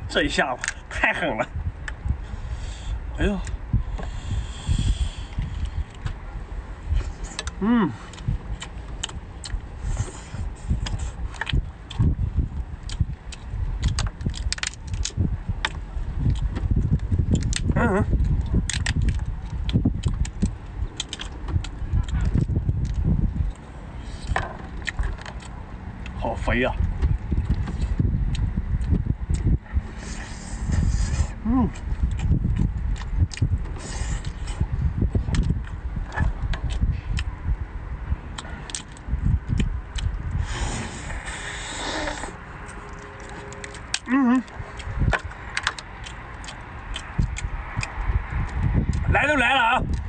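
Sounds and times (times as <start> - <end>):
steady low rumble: 0.0 - 50.0
wet chewing and smacking: 3.4 - 49.1
crab shell cracking: 12.8 - 16.5, 18.4 - 23.6, 42.1 - 49.0
slurping: 29.9 - 32.2, 40.4 - 45.0.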